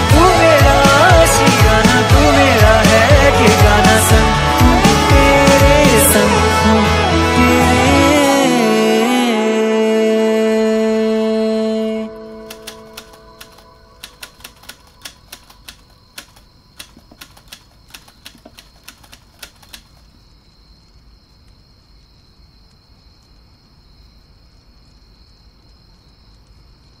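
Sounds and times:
typewriter keys clacking: 12.5s - 20.0s.

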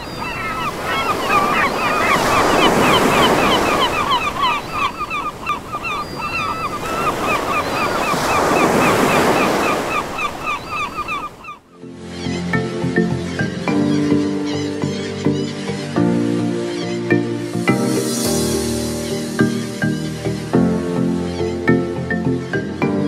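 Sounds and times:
surf breaking on a beach: 0.0s - 11.4s
flock of birds calling: 0.0s - 23.0s.

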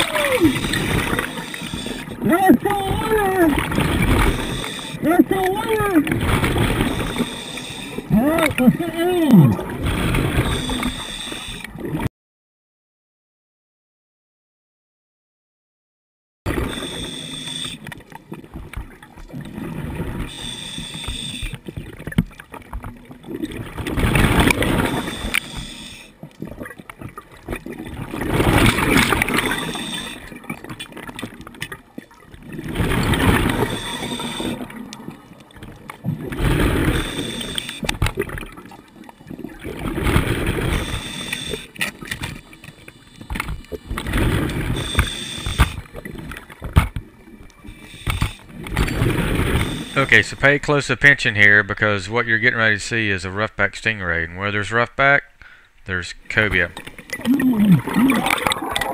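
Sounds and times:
exhaled bubbles gurgling: 0.0s - 12.1s, 16.5s - 50.1s, 56.8s - 58.9s
regulator hissing inhale: 0.6s - 2.1s, 4.2s - 5.0s, 6.9s - 8.0s, 10.4s - 11.7s, 16.6s - 17.8s, 20.3s - 21.6s, 24.9s - 26.2s, 29.6s - 30.3s, 33.6s - 34.6s, 36.9s - 37.8s, 40.7s - 41.8s, 44.7s - 45.9s, 47.7s - 48.5s, 49.6s - 50.0s.

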